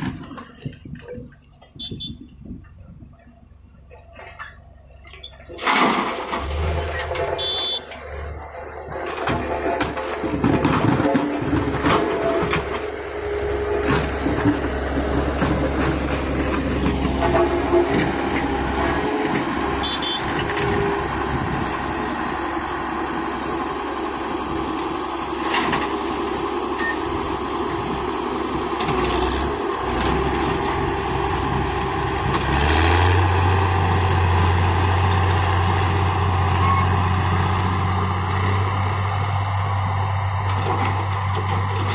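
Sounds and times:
backhoe loader engine working: 0.0s - 41.9s
knocks and clanks: 3.9s - 13.0s.

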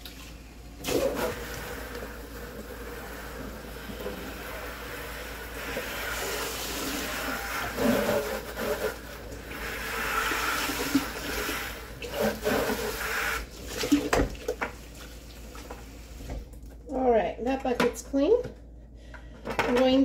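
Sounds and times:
water sloshing in plastic bucket: 10.8s - 15.8s.

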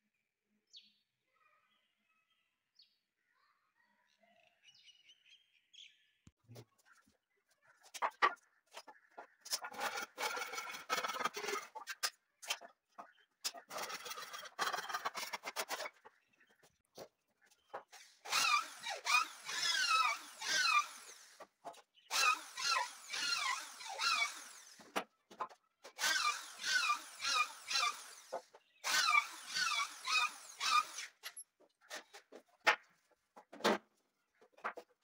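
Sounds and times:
hand saw cutting wood: 9.5s - 12.7s, 13.4s - 16.0s, 17.9s - 21.5s, 22.1s - 25.0s, 25.9s - 32.2s.

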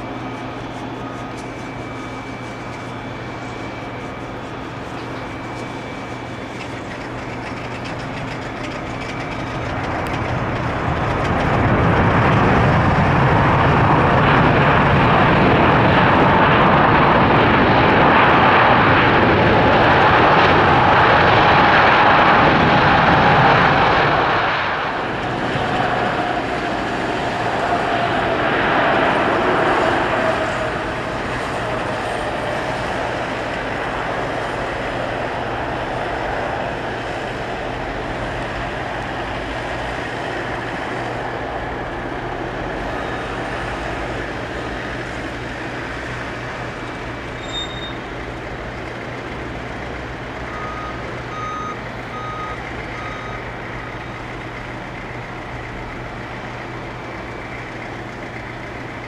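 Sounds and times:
steady low hum: 0.0s - 47.4s
jet engines rushing: 0.0s - 59.0s
reversing beeper beeps: 47.4s - 48.0s, 50.5s - 54.3s.

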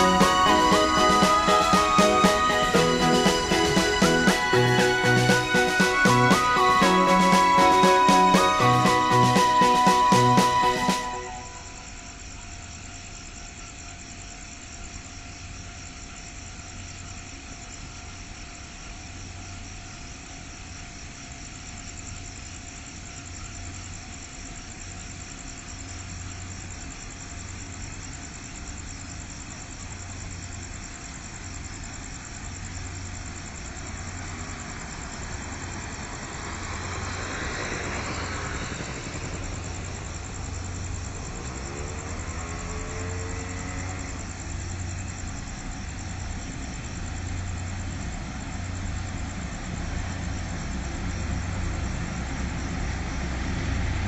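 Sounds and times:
train rumbling: 0.0s - 11.9s, 34.2s - 54.0s.

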